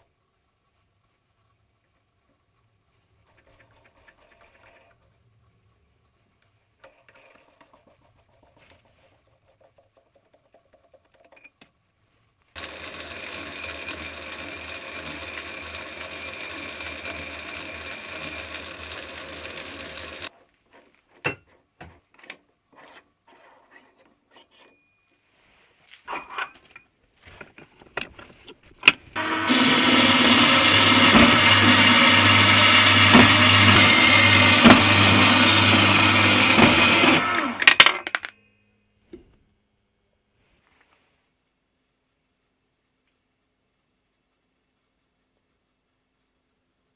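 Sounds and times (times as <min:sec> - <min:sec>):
bandsaw cutting metal: 0:12.6 - 0:20.3, 0:29.2 - 0:37.6.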